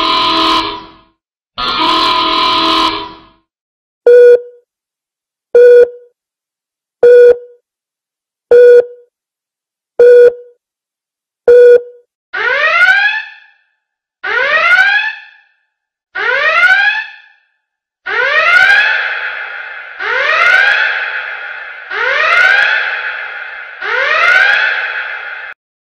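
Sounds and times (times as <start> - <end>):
whooping alarm rising in pitch: 18.1 - 25.6.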